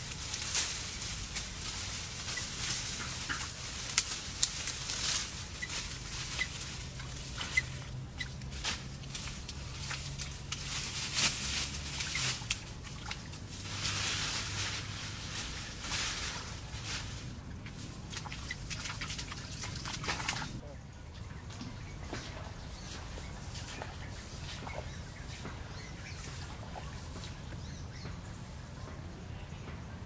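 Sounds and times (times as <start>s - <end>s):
twigs snapping: 0.0s - 13.4s
leaves rustling: 0.0s - 20.6s, 21.7s - 28.8s.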